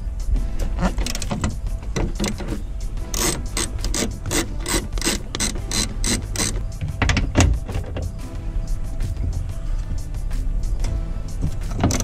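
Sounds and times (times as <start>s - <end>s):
ratchet wrench clicking: 1.0s - 7.3s, 10.8s - 12.0s.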